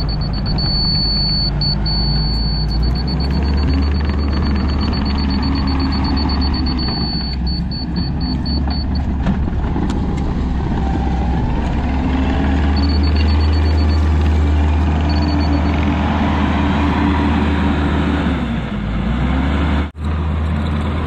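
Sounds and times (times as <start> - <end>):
back-up alarm beeping: 0.0 - 9.2, 11.9 - 15.9
diesel engine running: 0.0 - 21.0.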